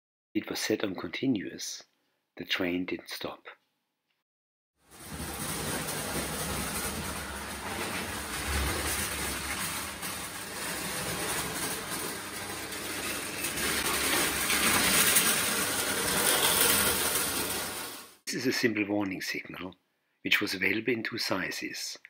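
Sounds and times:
toy train clattering on track: 10.1 - 18.0.

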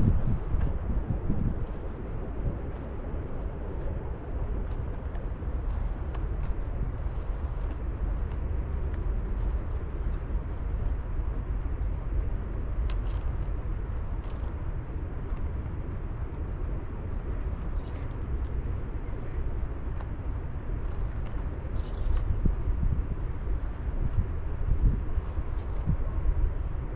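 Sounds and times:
low outdoor rumble: 0.0 - 26.9
small birds chirping: 17.5 - 18.3, 19.0 - 22.4.

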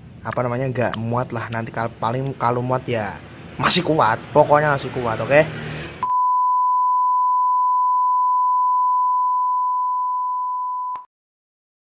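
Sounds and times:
high-pitched test tone beep: 6.0 - 11.0.

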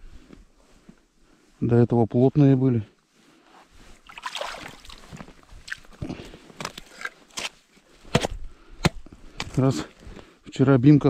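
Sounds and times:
water sloshing: 4.0 - 6.0.

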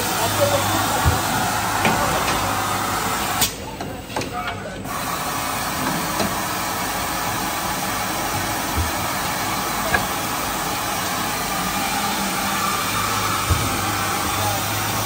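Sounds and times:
machinery hiss and hum: 4.8 - 15.0.

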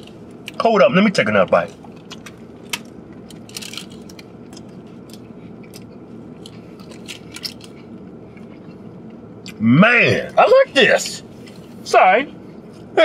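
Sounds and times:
low steady hum: 0.0 - 13.0
people chewing food: 1.5 - 9.6.

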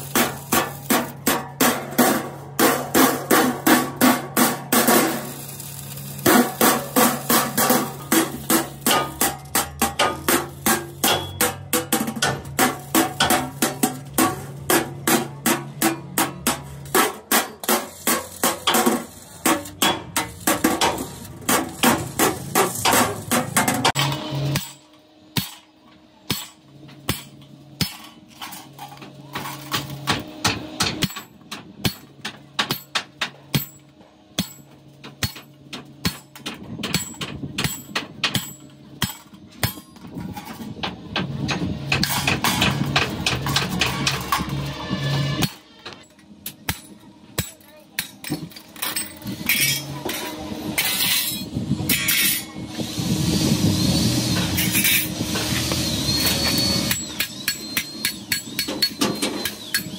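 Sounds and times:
hammer striking metal: 6.2 - 25.7, 26.3 - 28.2, 29.7 - 40.0, 45.4 - 52.5, 56.2 - 59.9.

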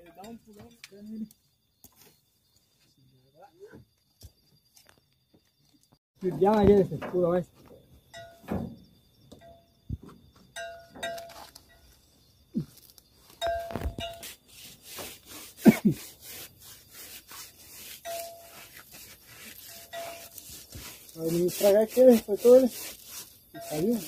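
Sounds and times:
gloved hand rubbing a rope: 12.8 - 24.0
short ringing tones: 13.4 - 14.3.

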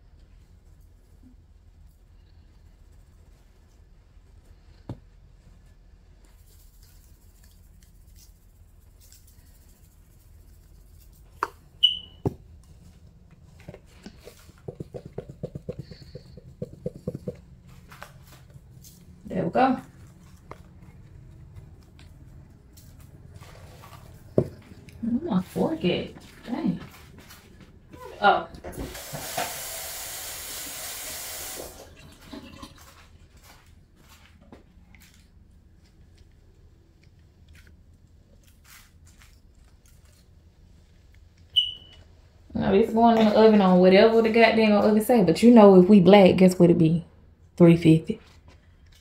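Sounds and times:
plastic shaker rattling: 6.3 - 11.6, 14.0 - 17.5
containers clicking and knocking: 13.6 - 17.6
water running from a tap: 28.8 - 32.8.

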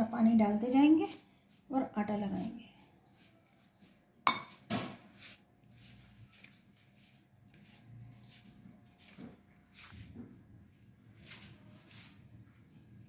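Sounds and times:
hands rubbing flour in bowl: 0.5 - 13.0
clink against steel bowl: 4.3 - 4.6.

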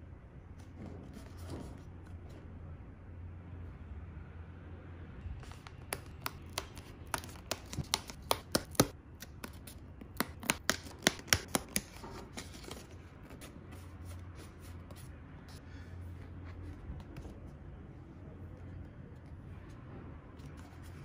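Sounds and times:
paperboard clicking and crackling: 5.4 - 13.4
paper rustling: 5.4 - 15.1.

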